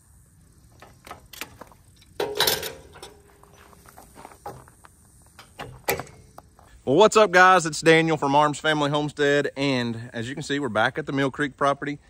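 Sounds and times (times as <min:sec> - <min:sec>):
metallic clicks and knocks: 0:00.8 - 0:03.3, 0:05.4 - 0:06.3
metal clatter: 0:00.8 - 0:03.7.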